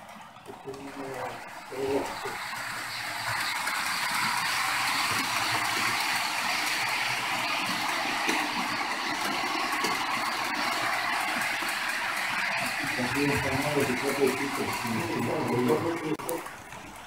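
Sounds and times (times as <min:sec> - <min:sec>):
model train whirring on track: 0:00.0 - 0:17.0.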